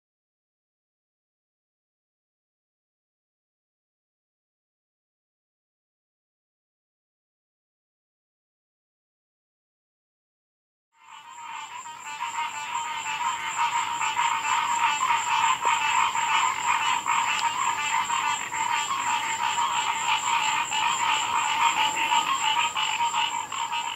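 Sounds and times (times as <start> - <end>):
frogs calling: 11.0 - 23.9.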